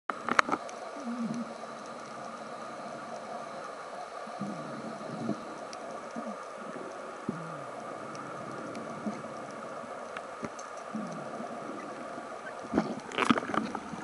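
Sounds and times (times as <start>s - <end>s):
low pitch-bending underwater sounds: 0.1s - 14.0s
underwater hiss: 0.6s - 14.0s.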